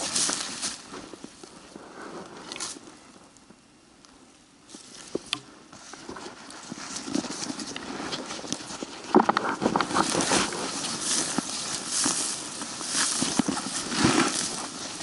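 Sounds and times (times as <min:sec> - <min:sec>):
footsteps through shrubs: 0:00.0 - 0:01.7, 0:05.8 - 0:15.0
brush swishing: 0:06.4 - 0:15.0.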